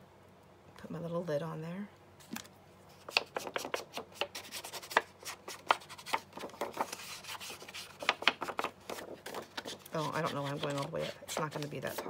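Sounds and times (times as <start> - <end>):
ink pad rubbing and dabbing paper: 8.9 - 12.0.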